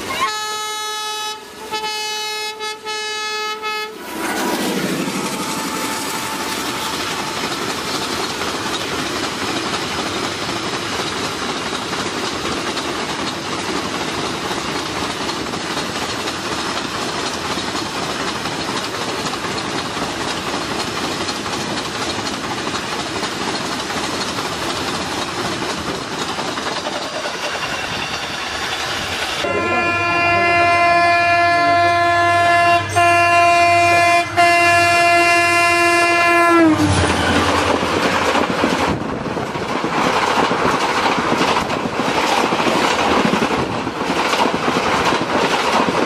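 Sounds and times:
train wheels on rails: 0.0s - 2.2s, 2.8s - 29.8s, 31.1s - 46.0s
wind rushing: 4.0s - 7.3s, 36.8s - 46.0s.

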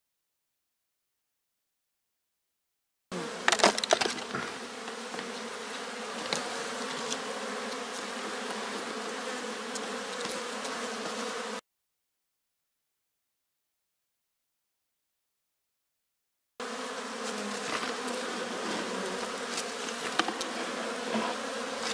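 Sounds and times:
bees buzzing: 3.1s - 11.6s, 16.6s - 21.9s.

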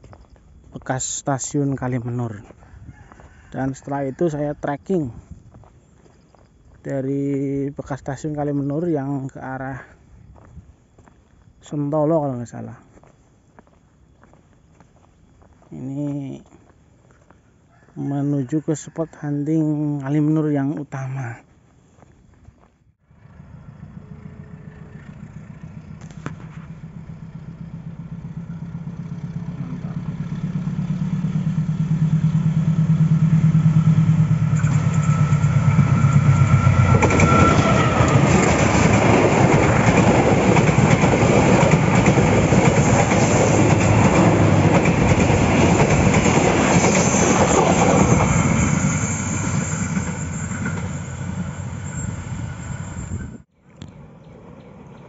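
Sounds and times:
diesel locomotive engine hum: 23.0s - 55.0s
train wheels clattering on rails: 25.1s - 51.5s.

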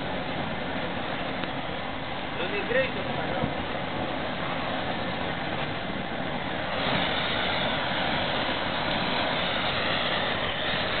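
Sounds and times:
gas burner hissing: 6.0s - 11.0s.

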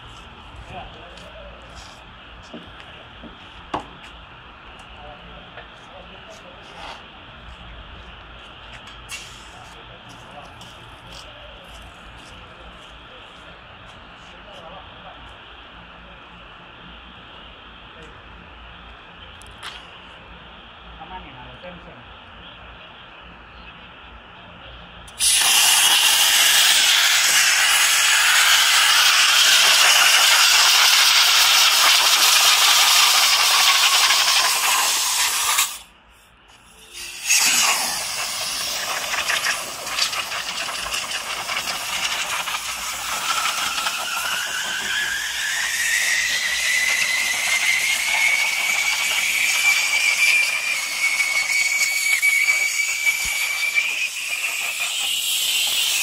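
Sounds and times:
compressed air hissing from hose: 25.1s - 35.9s, 36.5s - 56.0s.

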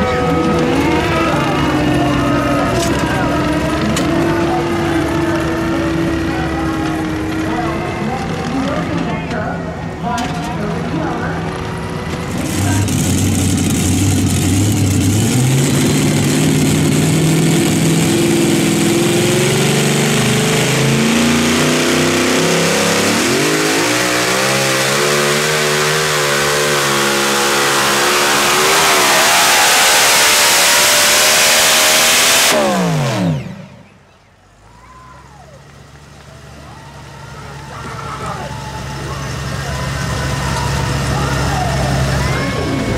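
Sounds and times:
pulling vehicle engine at full throttle: 0.0s - 42.9s.

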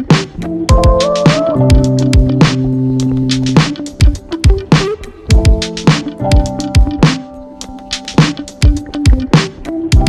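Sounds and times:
drum beat: 0.0s - 7.3s, 8.0s - 10.0s
held chords: 0.0s - 10.0s.

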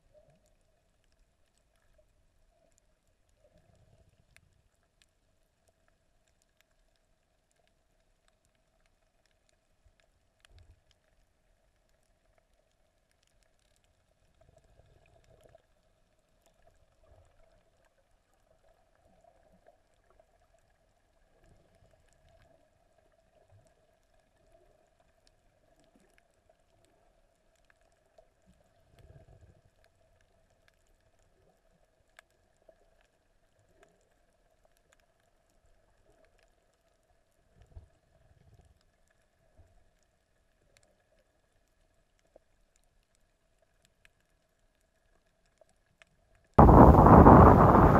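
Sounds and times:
faint ticks: 0.0s - 47.9s
low underwater hum: 0.0s - 47.9s
soft low thumps: 46.6s - 47.9s.

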